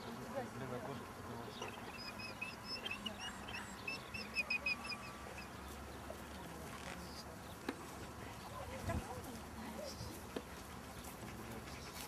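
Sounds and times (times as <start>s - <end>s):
small bird chirping: 1.5s - 7.6s.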